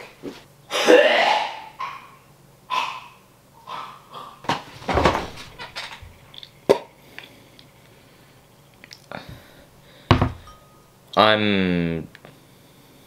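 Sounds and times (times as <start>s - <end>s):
person breathing hard and gagging: 3.6s - 4.6s.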